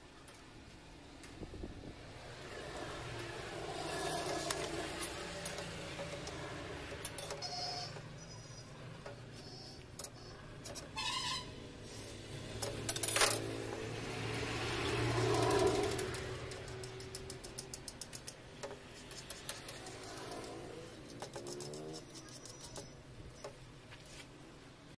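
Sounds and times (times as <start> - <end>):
steel square clinking and sliding: 2.6 - 14.0, 14.9 - 24.3
chalk scratching and tapping on steel: 2.8 - 11.0, 15.2 - 24.3
quick chalk ticks: 14.9 - 23.6.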